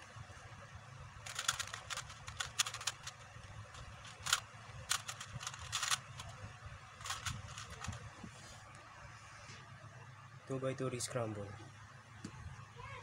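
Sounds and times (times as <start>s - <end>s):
speed cube clicking: 1.2s - 3.2s, 3.8s - 6.3s, 7.0s - 8.0s.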